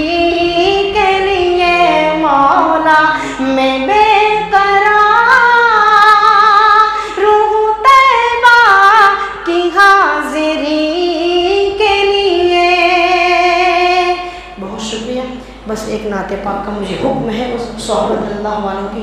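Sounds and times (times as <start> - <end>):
person singing unaccompanied: 0.0 - 15.4.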